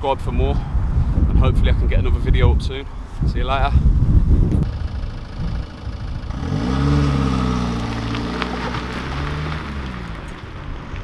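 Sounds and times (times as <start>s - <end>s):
car engine revving: 4.6s - 10.4s.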